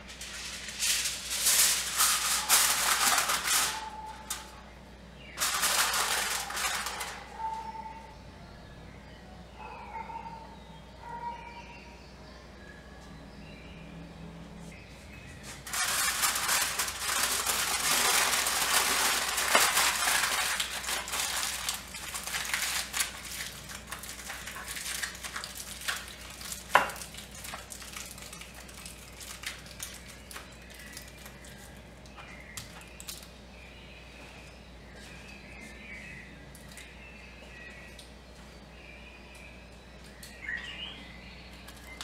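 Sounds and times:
aluminium foil crinkling: 0.0s - 7.7s, 15.5s - 33.3s.

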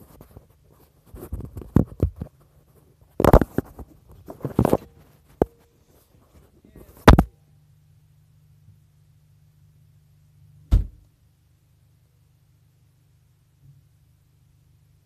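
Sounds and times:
faint low hum: 0.0s - 15.0s
phone knocking and rustling: 1.2s - 2.4s, 3.2s - 5.6s, 7.0s - 7.3s
car trunk lid shutting: 10.7s - 11.0s.

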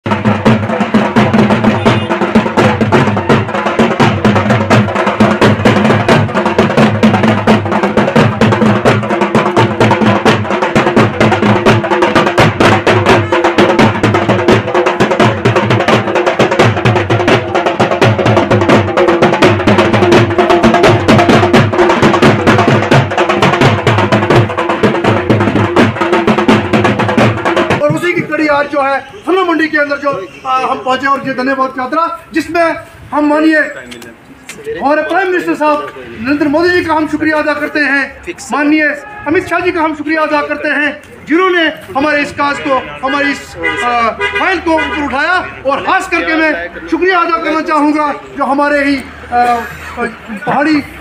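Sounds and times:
barrel drum beaten fast: 0.0s - 28.7s.

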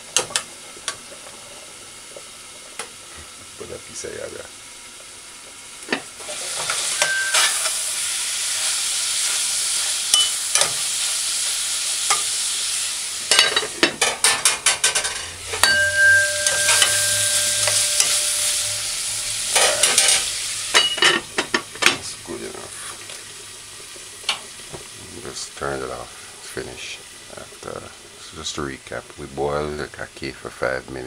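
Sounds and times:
food sizzling in a pot: 0.0s - 31.0s
metal clattering against a pot: 13.3s - 18.7s, 19.5s - 22.1s.

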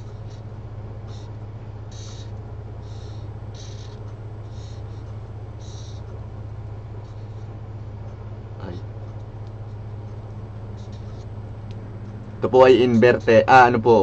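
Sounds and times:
steady low hum: 0.0s - 14.0s
marker pen scratching on paper: 1.9s - 6.1s, 10.6s - 11.4s.

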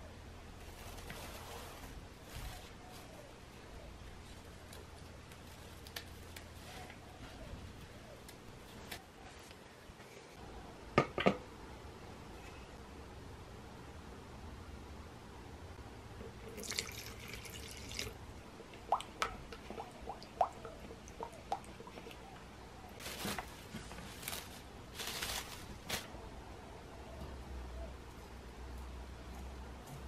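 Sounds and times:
liquid plops and drips: 16.5s - 22.2s
cling wrap crinkling: 23.0s - 26.2s.

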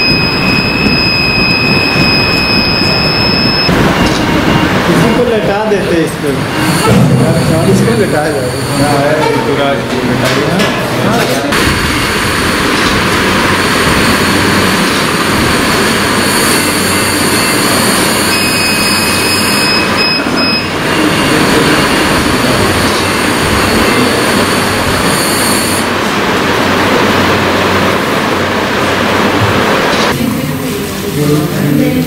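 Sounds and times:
high machine beep: 0.0s - 9.5s, 14.1s - 26.0s.

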